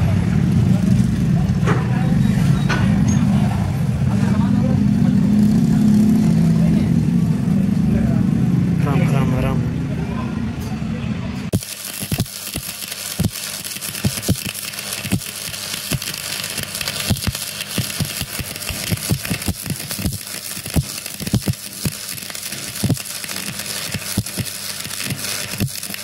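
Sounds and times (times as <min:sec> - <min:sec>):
low pops of welding arc: 0:11.5 - 0:26.0
welding arc crackling hiss: 0:11.5 - 0:26.0
welding machine hum: 0:11.5 - 0:26.0.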